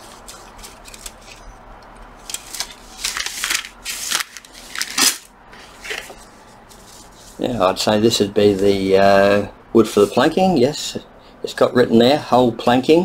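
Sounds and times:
plastic wrapping crinkling: 0.0 - 5.3.

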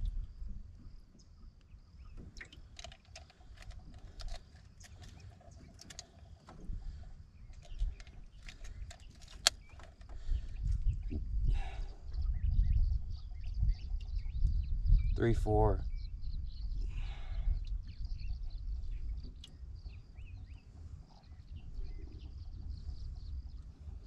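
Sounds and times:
steady low rumble: 0.0 - 1.5.

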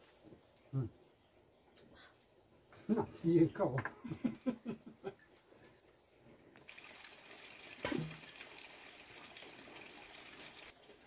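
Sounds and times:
water running: 6.6 - 11.0.

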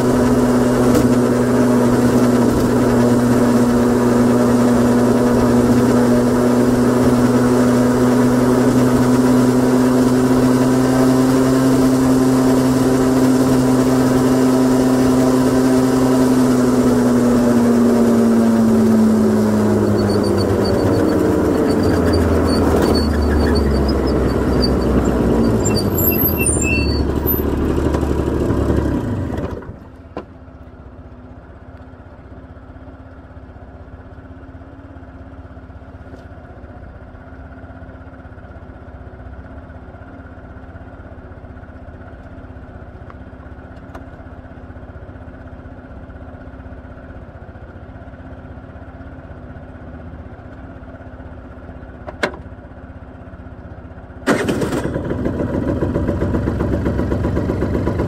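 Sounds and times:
two-stroke engine running: 0.0 - 58.0
brief high squeals: 19.6 - 27.6.

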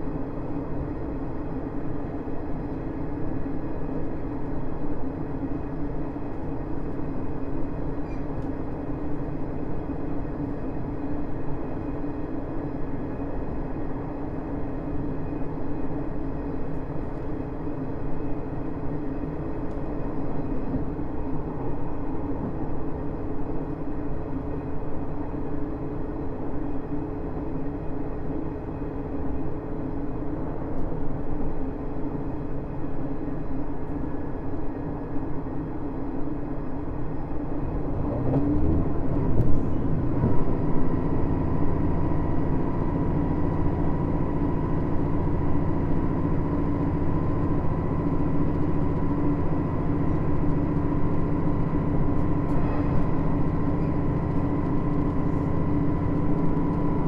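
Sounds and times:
diesel engine hum: 0.0 - 57.0
train running noise: 0.0 - 57.0.

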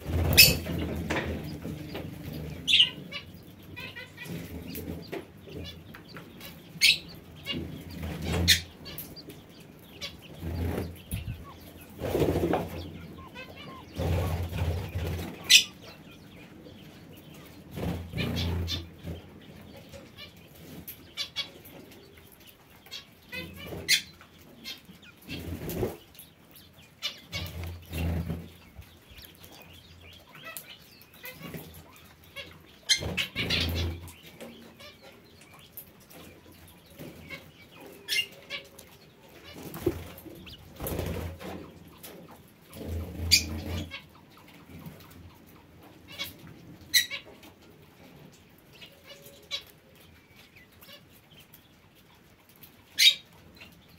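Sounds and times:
wings flapping: 0.0 - 3.2, 10.0 - 15.9, 25.3 - 26.1, 38.1 - 42.2
high parakeet chirps: 0.2 - 0.8, 2.6 - 16.3.

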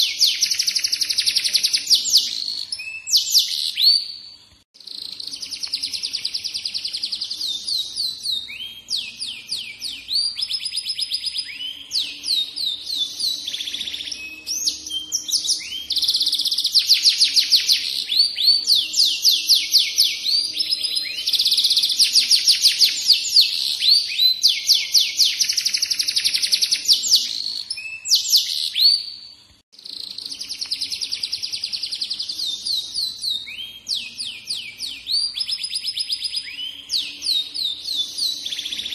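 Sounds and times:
canary singing trills: 0.0 - 38.9.

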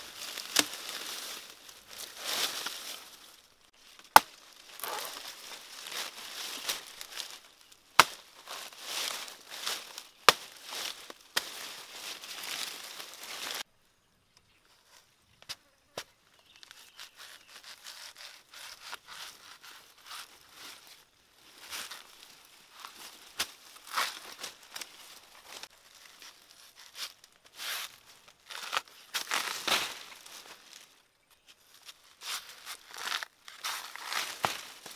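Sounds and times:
dry leaves rustling and crackling: 0.0 - 13.7, 17.6 - 31.0, 31.7 - 34.9
crisp tearing and crunching: 3.9 - 13.6, 23.7 - 30.8, 32.2 - 34.9
knife cutting plant trunk: 4.1 - 5.4, 16.8 - 20.3
knife chopping tree trunk: 8.0 - 8.3.

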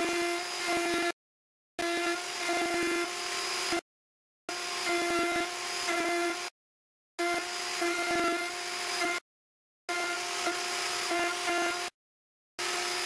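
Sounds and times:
router whining: 0.0 - 1.2, 1.8 - 3.8, 4.5 - 6.5, 7.2 - 9.2, 9.9 - 12.0, 12.6 - 13.0.

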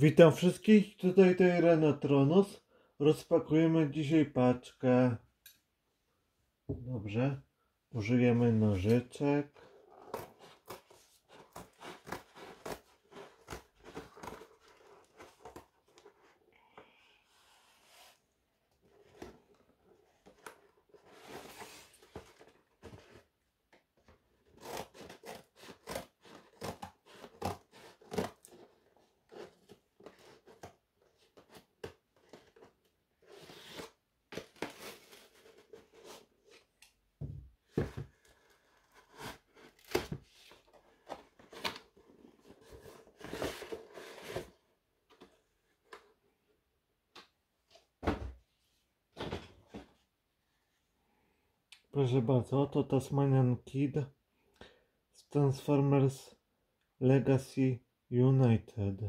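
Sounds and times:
scissors cutting cardboard: 9.6 - 16.3, 24.4 - 36.7
cardboard crunching and tearing: 9.7 - 15.7, 24.4 - 30.6.

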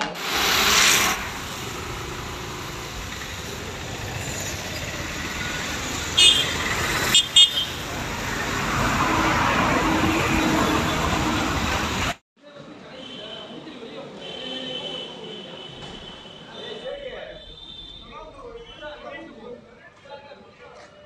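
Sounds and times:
vehicles passing: 0.0 - 12.2
car horn toots: 6.2 - 7.9.

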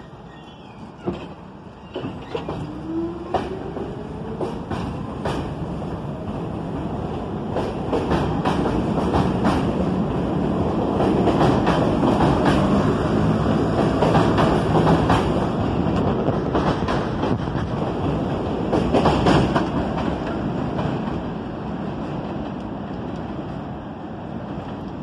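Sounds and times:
train wheels clicking over rail joints: 10.9 - 12.9, 13.5 - 21.3.

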